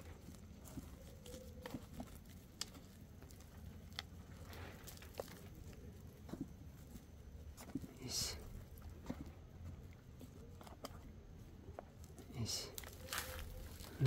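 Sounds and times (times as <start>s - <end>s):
hand pulling weeds from soil: 11.9s - 14.0s.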